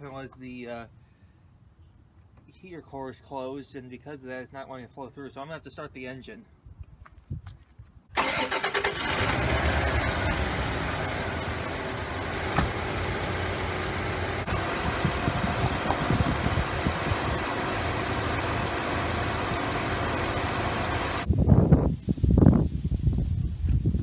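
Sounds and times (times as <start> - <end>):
car engine idling: 8.2 - 21.3.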